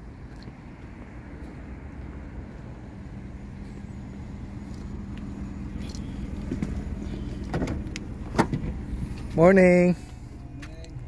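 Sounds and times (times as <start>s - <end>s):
car engine idling: 0.1s - 11.0s
car door clicks: 7.4s - 8.8s.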